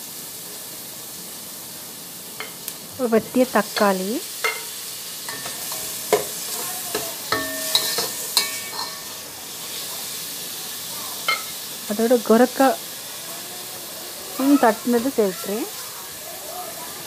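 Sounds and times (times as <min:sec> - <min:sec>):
vegetables sizzling in hot oil: 0:00.0 - 0:17.0
spatula knocking against metal pot: 0:05.3 - 0:09.0.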